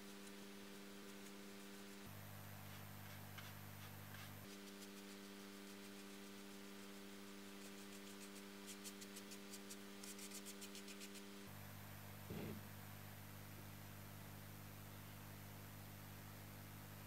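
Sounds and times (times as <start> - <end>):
paintbrush brushing paper cone: 0.0 - 11.5
steady low hum: 0.0 - 16.7.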